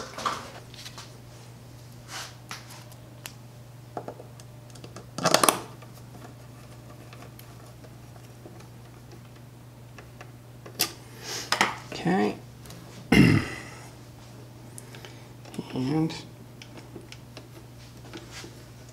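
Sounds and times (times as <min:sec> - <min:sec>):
steady low hum: 0:00.0 - 0:18.9.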